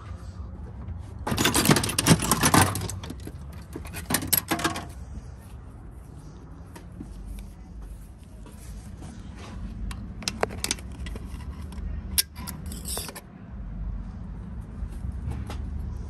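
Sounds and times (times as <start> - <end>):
razor blade scraping metal: 12.2 - 13.2.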